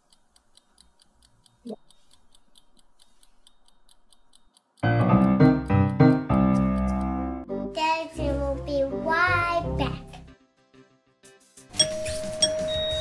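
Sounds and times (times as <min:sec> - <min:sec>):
timer ticking: 0:00.0 - 0:07.4
piano-like keyboard music: 0:04.8 - 0:10.4, 0:11.7 - 0:13.0.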